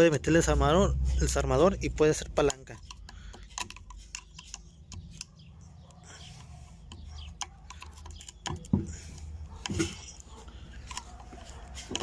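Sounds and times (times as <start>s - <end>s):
screwdriver scraping on metal: 2.2s - 5.5s, 6.2s - 12.0s.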